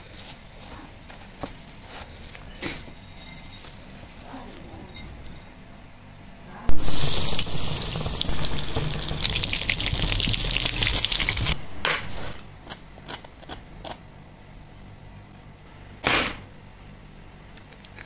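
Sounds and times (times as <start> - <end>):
deep-frying oil sizzle: 6.7 - 11.6.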